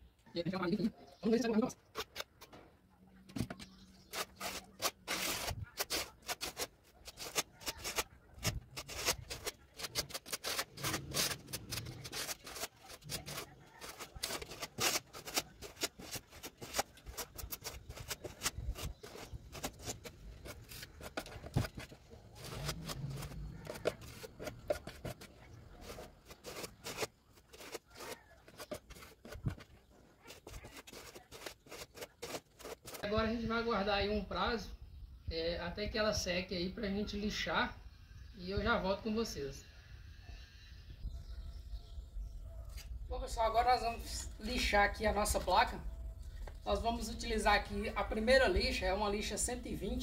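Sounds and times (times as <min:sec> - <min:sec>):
spatula scraping putty: 0:04.0 - 0:33.0.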